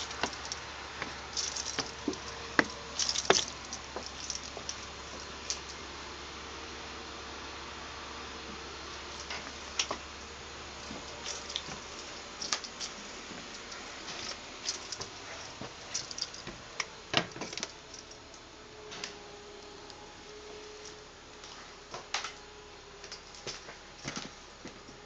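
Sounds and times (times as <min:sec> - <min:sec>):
footsteps: 0:00.0 - 0:05.8, 0:10.8 - 0:17.8
steady hiss: 0:00.0 - 0:24.9.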